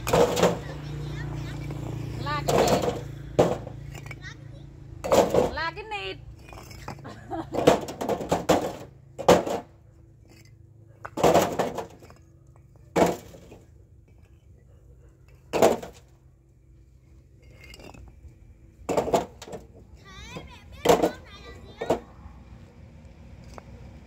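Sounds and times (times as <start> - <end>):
bricks clinking and clattering: 0.0 - 1.8, 2.4 - 5.6, 6.3 - 14.5, 15.2 - 16.2, 17.2 - 22.0.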